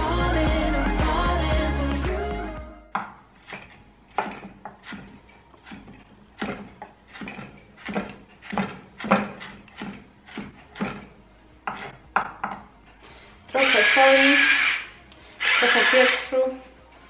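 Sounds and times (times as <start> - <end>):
knife chopping on wooden board: 4.2 - 11.1.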